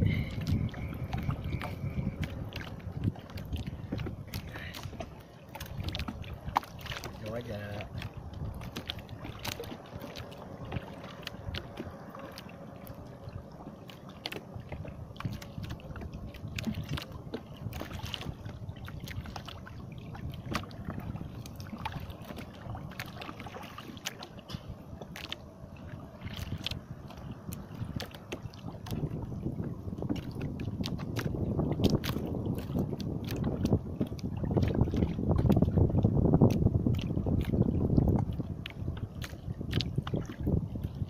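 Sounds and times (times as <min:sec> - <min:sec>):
sea water lapping against boat: 0:00.0 - 0:41.0.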